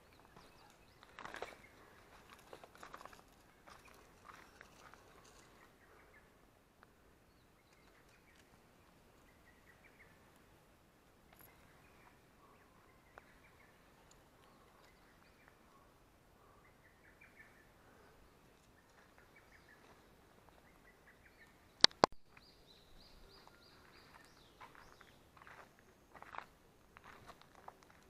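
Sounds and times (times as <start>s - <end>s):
faint birds chirping: 0.0s - 28.0s
sharp clicks: 21.8s - 22.2s.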